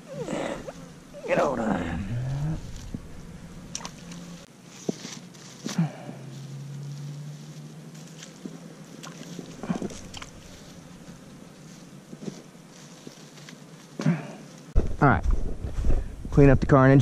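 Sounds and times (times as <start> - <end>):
faint low hum: 0.0 - 4.5
plastic bag rustling: 0.6 - 13.9.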